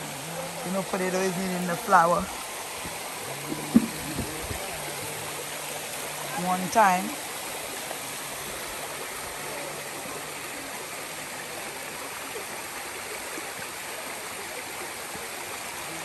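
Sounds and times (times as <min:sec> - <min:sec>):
stream flowing over rocks: 0:00.0 - 0:16.0.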